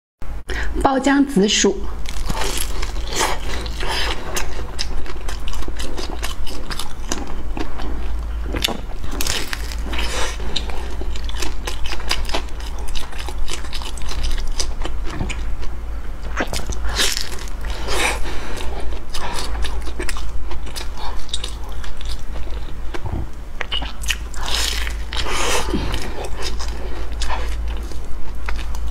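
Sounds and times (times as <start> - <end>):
biting and chewing: 2.0 - 28.9
crackly mouth sounds: 2.1 - 28.9.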